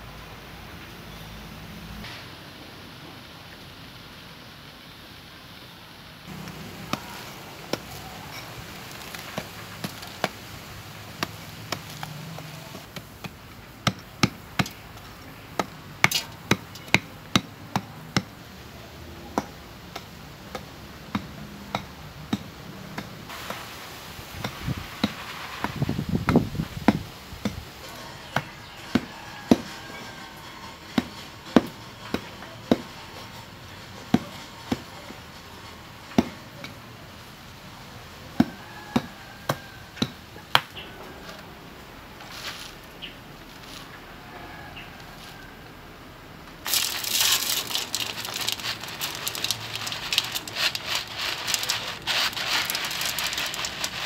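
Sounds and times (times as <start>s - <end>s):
clay crumbling: 46.6s - 54.0s.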